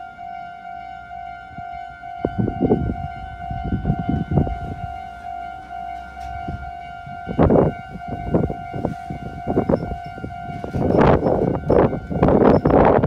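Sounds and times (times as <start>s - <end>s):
level crossing warning bell: 0.0s - 13.0s.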